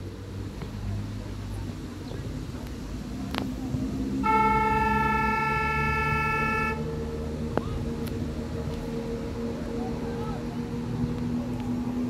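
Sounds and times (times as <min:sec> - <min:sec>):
horn long steady note: 0:04.0 - 0:12.0.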